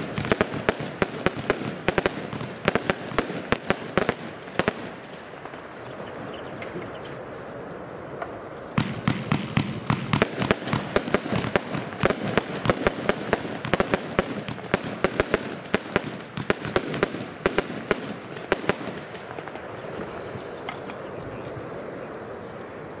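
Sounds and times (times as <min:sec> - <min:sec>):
firework cake firing bangs: 0:00.0 - 0:05.6, 0:08.7 - 0:19.7.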